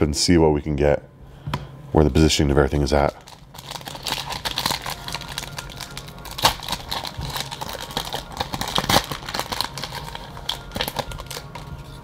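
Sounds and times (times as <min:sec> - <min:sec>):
foil wrapper crinkling and tearing: 0:03.0 - 0:12.0.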